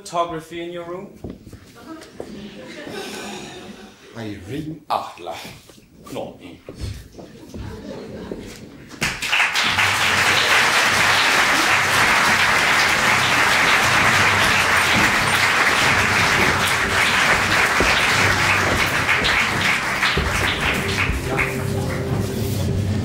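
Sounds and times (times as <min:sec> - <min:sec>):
audience applause: 0:09.0 - 0:22.2
faint music: 0:09.7 - 0:23.0.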